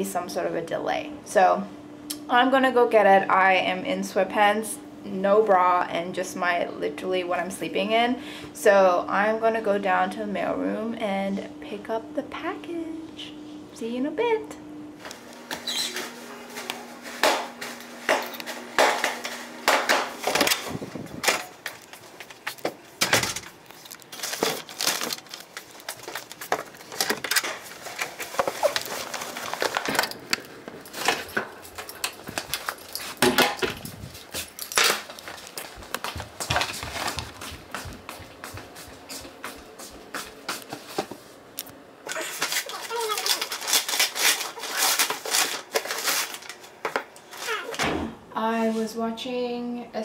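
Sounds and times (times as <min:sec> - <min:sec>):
steady low hum: 0:00.0 - 0:42.6
plastic package rustling: 0:15.1 - 0:37.4, 0:42.1 - 0:47.7.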